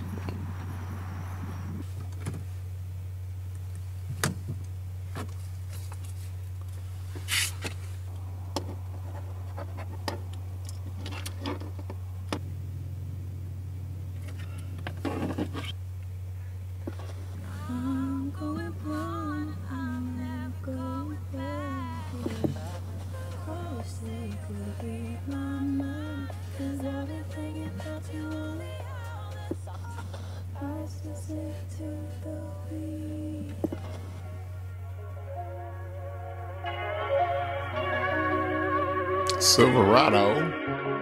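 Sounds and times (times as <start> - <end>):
low hum: 0.0 - 41.0
rustling noises: 3.6 - 12.1, 16.8 - 17.6, 21.8 - 30.5, 33.4 - 34.5
voice humming a slow melody: 17.3 - 39.5.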